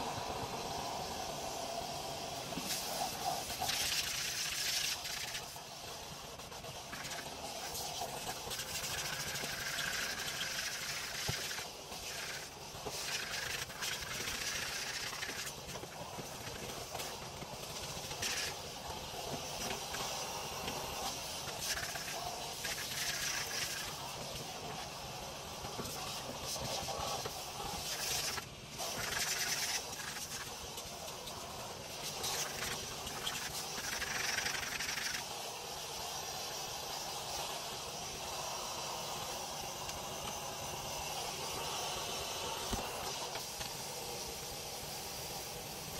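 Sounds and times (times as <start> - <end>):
steam cleaner hissing: 0.0 - 45.9
vacuum nozzle sucking air: 0.0 - 45.9.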